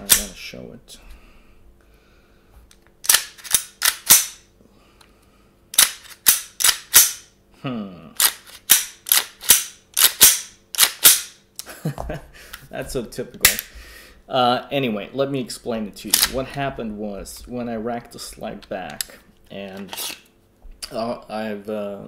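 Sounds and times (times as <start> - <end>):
pistol slide racking clacks: 3.0 - 4.4, 5.8 - 7.2, 8.2 - 11.4.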